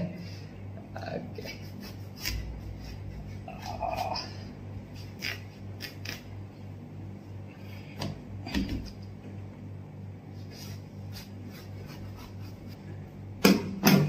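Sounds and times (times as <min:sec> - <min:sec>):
fan hum: 0:00.0 - 0:14.0
knife cutting watermelon: 0:01.5 - 0:06.4, 0:10.4 - 0:12.8.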